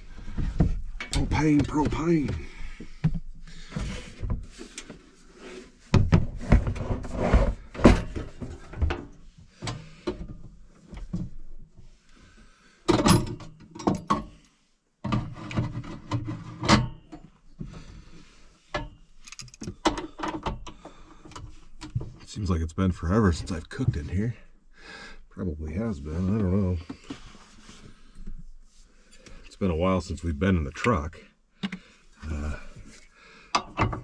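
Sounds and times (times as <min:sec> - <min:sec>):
metal knocks clanks and rattles: 0:00.0 - 0:03.2, 0:05.9 - 0:10.4, 0:12.9 - 0:14.4, 0:15.1 - 0:17.4, 0:33.6 - 0:34.0.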